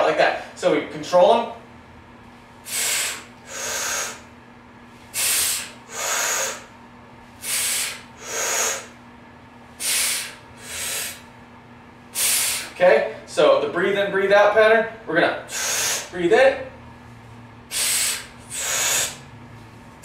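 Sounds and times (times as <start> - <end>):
person breathing hard: 2.6 - 4.3, 5.1 - 6.7, 7.4 - 9.0, 9.8 - 11.3, 12.1 - 12.8, 15.5 - 16.1, 17.7 - 19.3.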